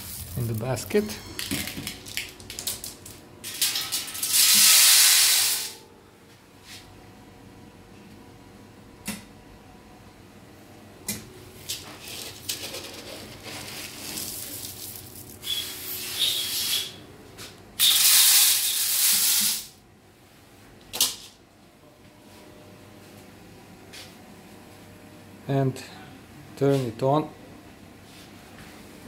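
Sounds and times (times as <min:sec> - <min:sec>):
seeds pouring into steel hopper: 0:00.0 - 0:00.9, 0:04.1 - 0:05.7, 0:13.4 - 0:15.4.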